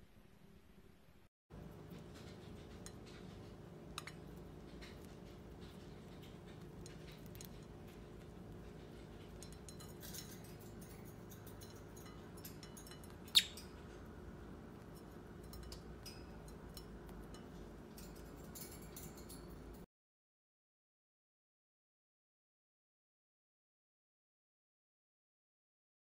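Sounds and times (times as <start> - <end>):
low room hum: 0.0 - 19.9
birds pecking food on plate: 1.6 - 19.8.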